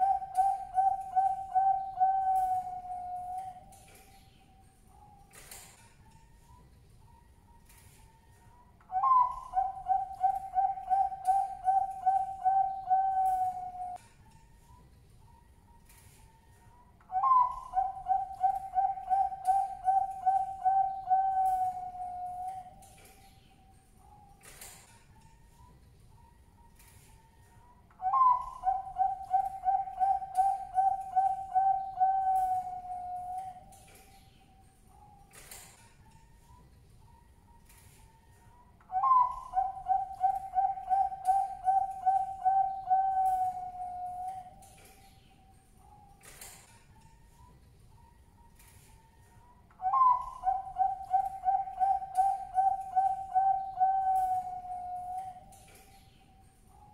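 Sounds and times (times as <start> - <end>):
dove cooing: 0.0 - 3.7, 8.9 - 14.0, 17.1 - 22.8, 28.0 - 33.8, 38.9 - 44.7, 49.8 - 55.6.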